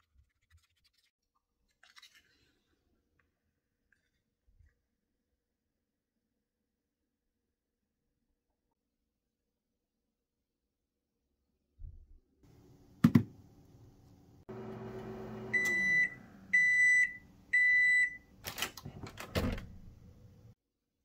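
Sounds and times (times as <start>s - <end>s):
microwave oven humming: 12.5s - 18.4s
microwave long beeps: 14.5s - 18.3s.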